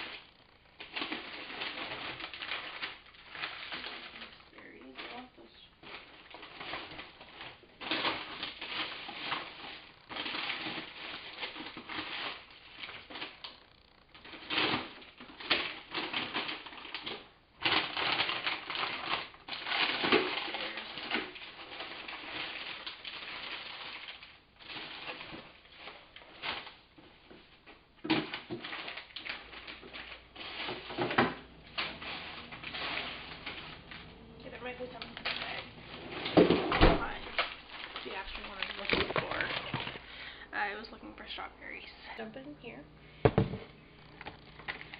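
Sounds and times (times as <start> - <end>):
plastic bags crinkling: 0.0 - 44.9
sharp knocks: 43.2 - 43.7.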